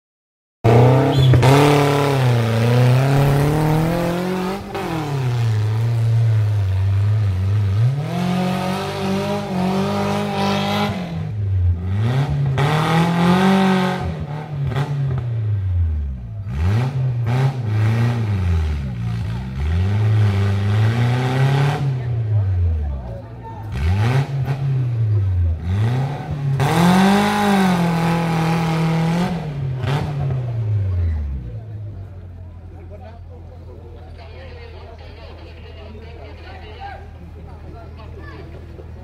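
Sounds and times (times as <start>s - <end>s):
engine revving hard under load: 0.7s - 15.4s, 16.4s - 22.6s, 23.7s - 31.4s.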